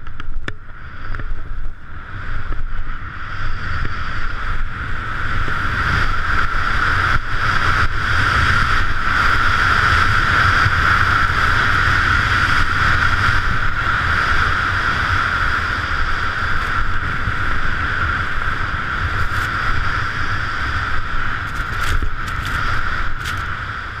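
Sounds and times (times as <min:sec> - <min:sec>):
wind rushing over microphone: 0:00.0 - 0:24.0
skis hissing through snow: 0:19.0 - 0:23.6.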